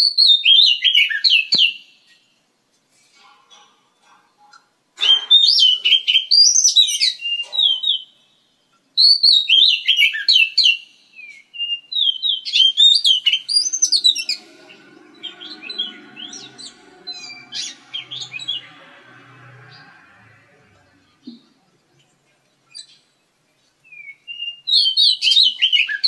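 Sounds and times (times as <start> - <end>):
faint low hum: 12.5 - 24.0.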